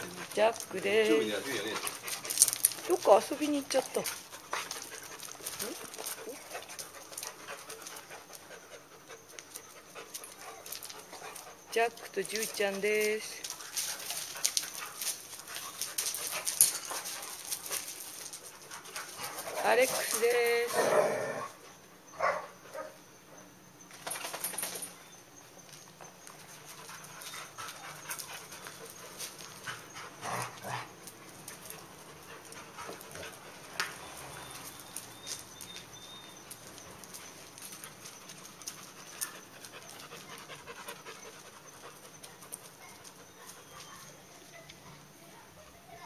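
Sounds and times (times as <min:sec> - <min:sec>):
dogs panting hard: 0:00.0 - 0:20.5, 0:26.4 - 0:34.6, 0:37.0 - 0:44.1
dogs scuffling: 0:00.0 - 0:21.6, 0:23.9 - 0:44.9.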